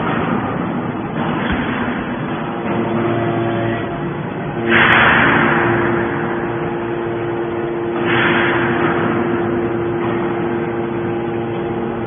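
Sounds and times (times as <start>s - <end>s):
hydraulic power unit hum: 0.0s - 12.0s.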